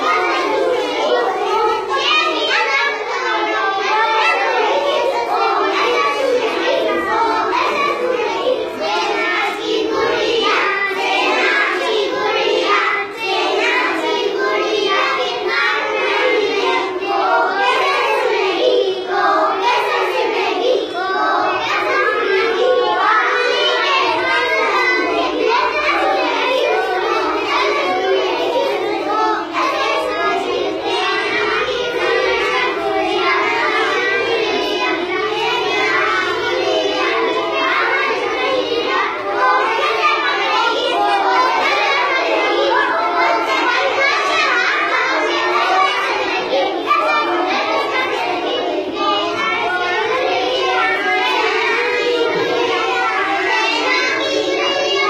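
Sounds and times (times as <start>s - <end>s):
children singing in unison: 0.0s - 55.0s.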